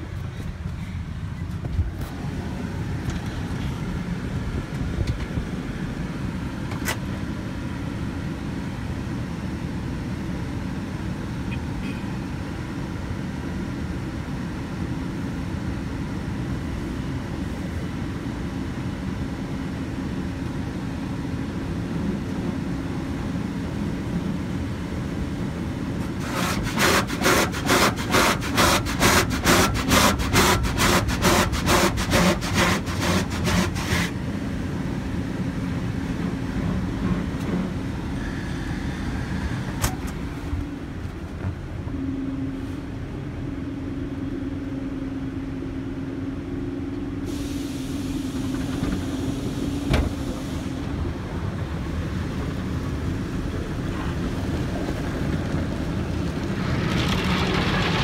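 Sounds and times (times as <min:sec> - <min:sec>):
low rumble inside car: 0:00.0 - 0:58.0
car wash brushes swishing and slapping: 0:26.0 - 0:34.2.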